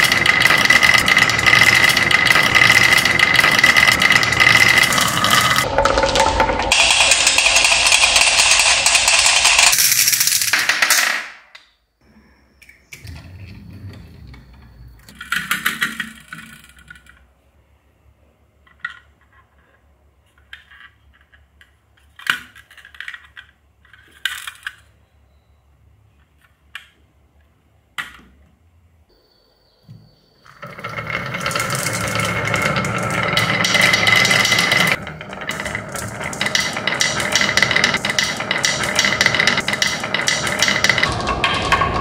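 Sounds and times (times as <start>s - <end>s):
marbles rattling down wooden slope: 0.0s - 11.3s, 30.5s - 42.0s
plastic toy clicks and knocks: 15.1s - 17.3s, 20.4s - 24.9s, 30.6s - 42.0s.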